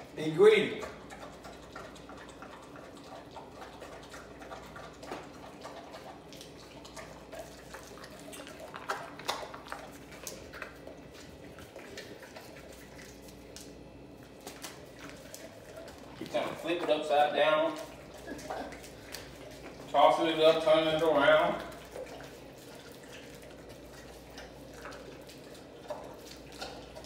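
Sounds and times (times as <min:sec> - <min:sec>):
dog chewing meat and bone: 0:00.0 - 0:27.0
teeth clicking on bone: 0:00.8 - 0:13.8, 0:21.6 - 0:27.0.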